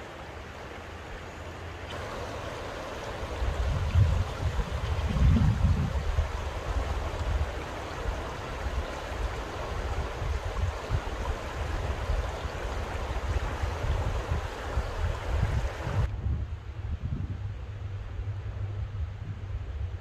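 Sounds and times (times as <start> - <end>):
creek running over rocks: 0.0 - 16.1
wind rumble on microphone: 3.0 - 20.0.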